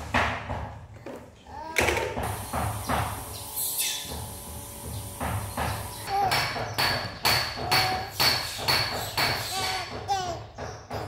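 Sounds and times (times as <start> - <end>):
knocking with metallic ring: 5.2 - 11.0.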